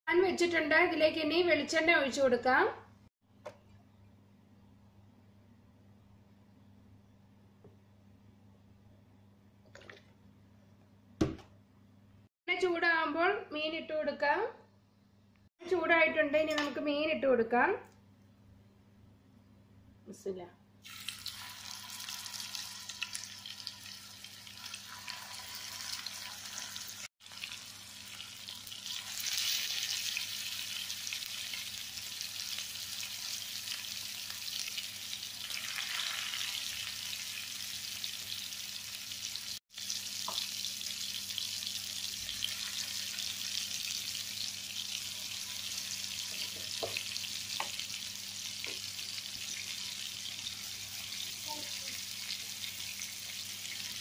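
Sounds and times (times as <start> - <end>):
fish sizzling in hot oil: 20.8 - 54.0.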